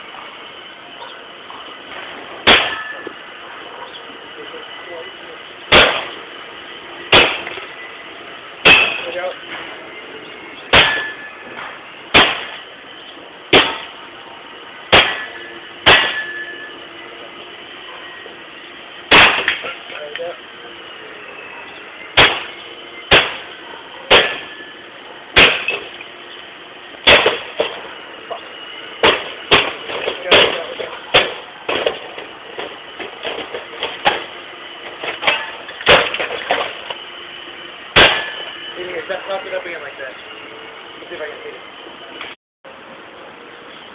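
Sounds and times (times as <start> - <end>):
tool blows smashing object: 2.4 - 3.0, 8.6 - 9.1, 10.7 - 11.3, 12.1 - 12.6, 14.9 - 16.5, 19.1 - 19.7, 22.2 - 23.5, 25.4 - 25.9, 27.0 - 27.8, 38.0 - 38.5.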